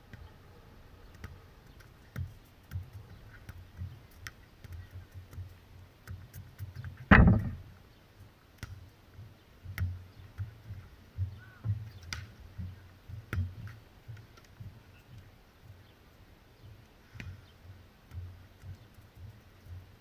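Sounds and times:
loud thump: 7.1s - 7.6s.

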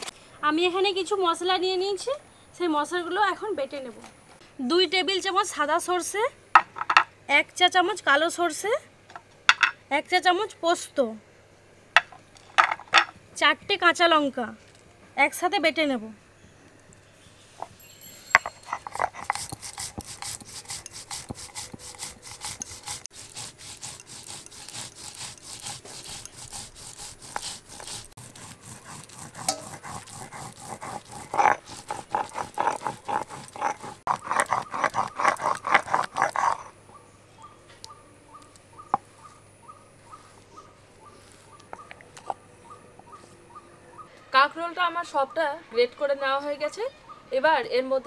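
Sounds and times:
stone grinding spices: 17.7s - 36.7s.

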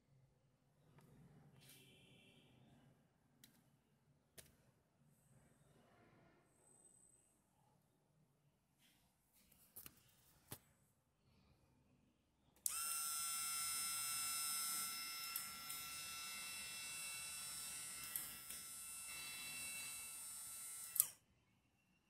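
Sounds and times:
motor high-pitched whine: 12.7s - 21.1s.

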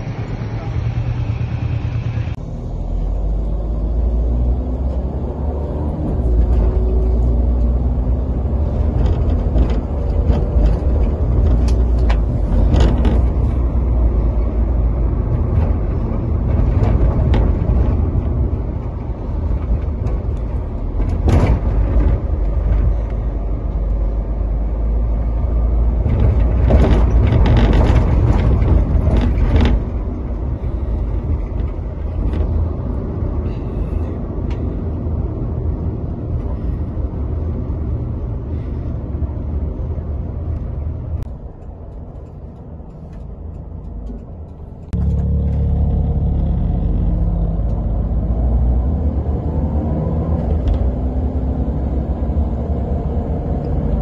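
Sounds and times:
engine and road noise: 0.0s - 54.0s
wind rumble on microphone: 0.0s - 54.0s.

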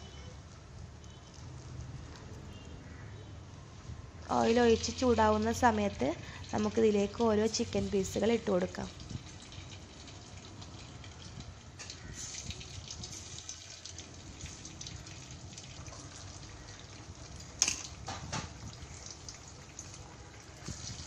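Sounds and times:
chicken sizzling in oil: 7.5s - 21.0s
food dropped into oil: 17.6s - 18.6s.

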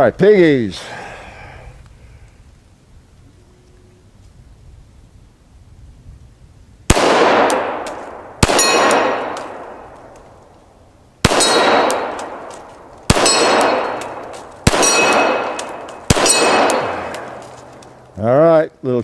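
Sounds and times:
pistol shots: 6.9s - 10.3s, 11.2s - 17.8s
steel target clanging: 8.4s - 9.6s, 13.1s - 17.6s.

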